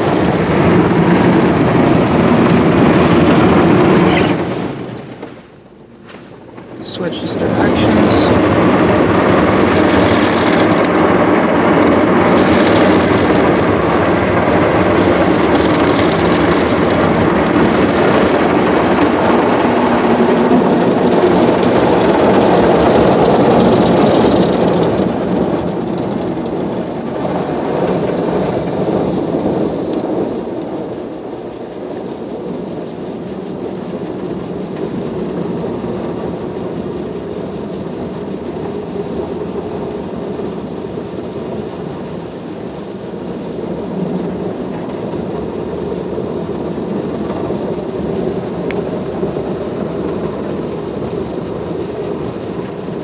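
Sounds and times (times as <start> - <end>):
car wash brushes scrubbing: 0.0 - 15.5
water spraying: 0.0 - 26.2.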